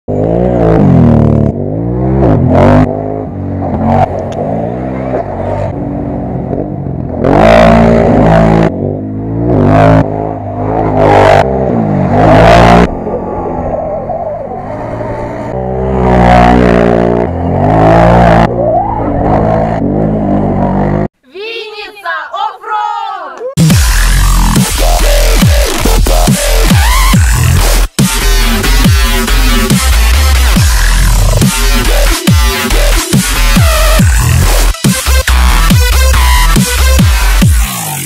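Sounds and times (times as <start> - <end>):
quad bikes revving and passing: 0.1 - 13.6, 14.6 - 21.1.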